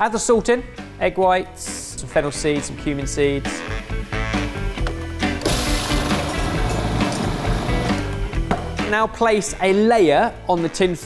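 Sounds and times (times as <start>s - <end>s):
background music: 0.0s - 11.0s
food processor running: 5.4s - 8.0s.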